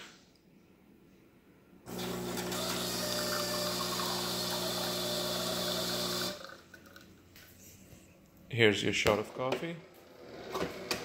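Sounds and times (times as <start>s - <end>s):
espresso machine pump humming: 1.9s - 6.7s.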